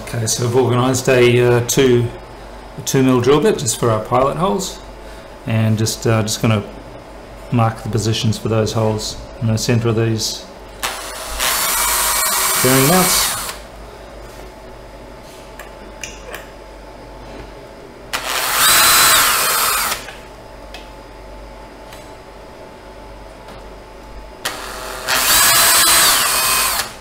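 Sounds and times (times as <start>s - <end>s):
cordless drill motor whine: 10.8s - 13.6s, 18.2s - 20.2s, 24.4s - 27.0s.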